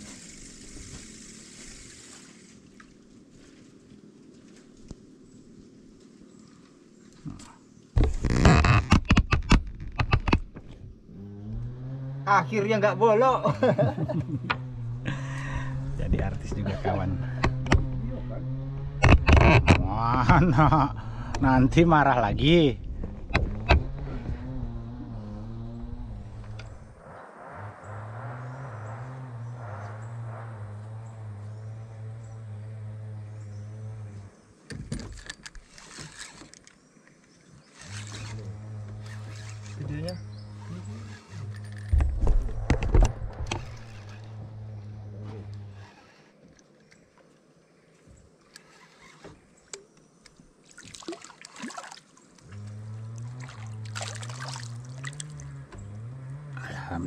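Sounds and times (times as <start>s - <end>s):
sharp clicks and knocks: 8.0s - 10.8s, 17.4s - 18.0s, 18.7s - 20.5s, 23.0s - 24.1s, 41.5s - 44.2s
low steady hum: 10.4s - 35.5s, 37.3s - 47.2s, 49.7s - 57.0s
small engine running steadily: 10.8s - 22.0s, 22.8s - 27.0s, 28.7s - 34.6s, 37.6s - 46.3s, 52.4s - 57.0s
fish splashing in water: 50.6s - 55.6s.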